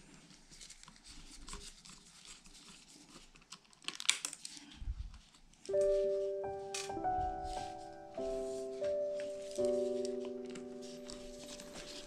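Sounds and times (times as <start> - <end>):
piano-like music: 5.7 - 12.0.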